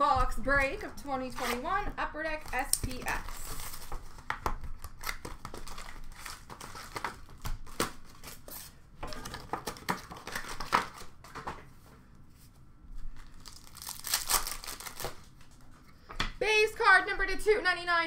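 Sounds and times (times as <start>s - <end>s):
plastic wrapping crinkling and tearing: 1.2s - 8.5s, 13.1s - 15.6s.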